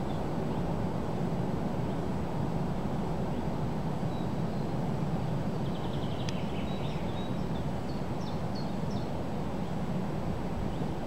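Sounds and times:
wind blowing across microphone: 0.0s - 11.0s
small birds chirping: 5.5s - 9.8s.

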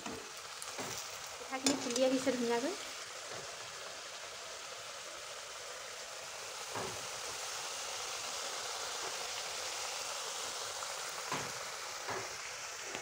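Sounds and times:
oil sizzling in a wok: 0.0s - 13.0s.

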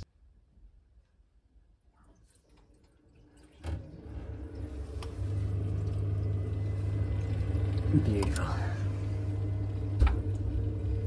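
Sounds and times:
boiler fan and burner hum: 2.8s - 11.0s.

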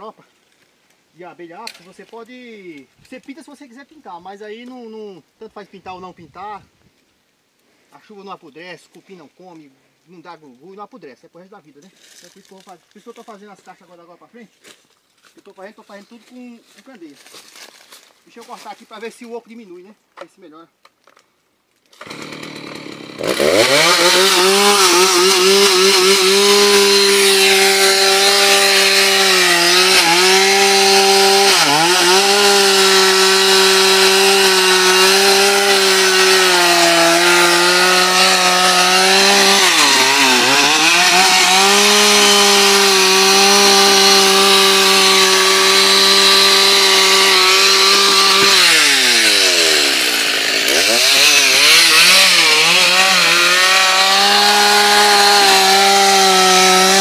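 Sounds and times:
chainsaw cutting log: 21.9s - 57.0s.

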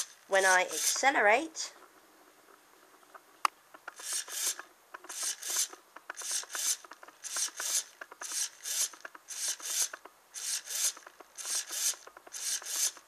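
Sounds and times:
servo buzzing: 0.0s - 1.2s, 3.8s - 13.0s.

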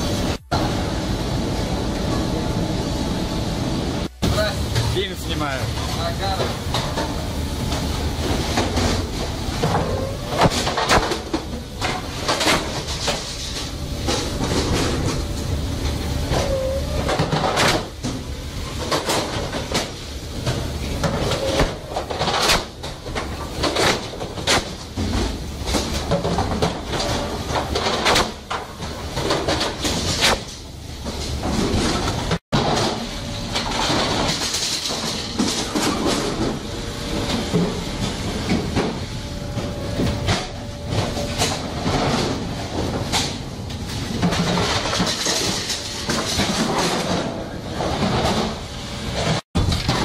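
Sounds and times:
machinery rumble: 0.0s - 50.0s
frozen fish blocks clattering on steel: 44.1s - 48.6s.

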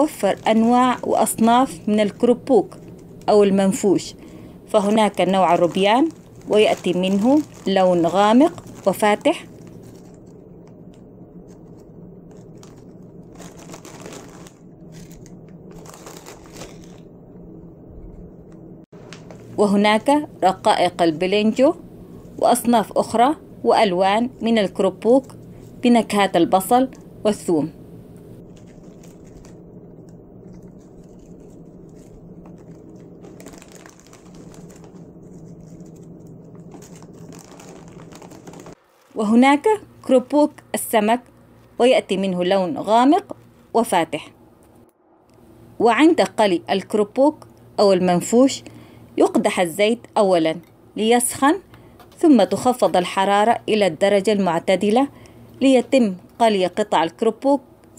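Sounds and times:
plastic bags crinkling: 0.0s - 3.3s, 4.2s - 17.1s, 28.4s - 40.1s
steady low hum: 0.0s - 57.9s
crackers rustling: 4.2s - 17.1s, 28.4s - 39.2s
crackers clicking and rattling: 28.5s - 38.8s.

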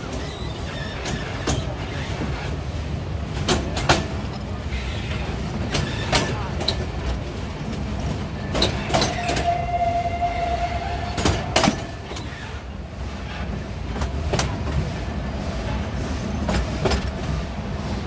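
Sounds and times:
steam train rumbling on track: 0.0s - 18.0s
knocks and clanks: 11.1s - 12.4s.

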